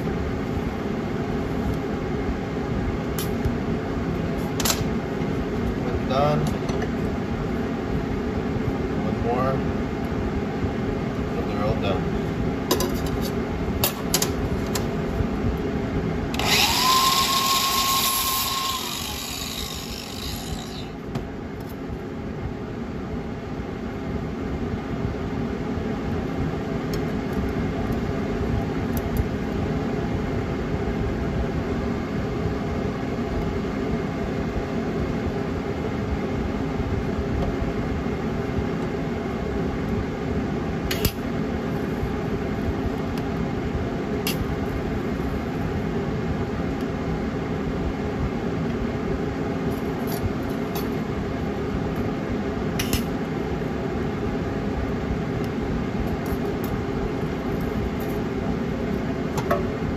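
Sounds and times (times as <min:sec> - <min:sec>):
steady machine hum: 0:00.0 - 0:59.9
power tool whining: 0:16.3 - 0:21.0.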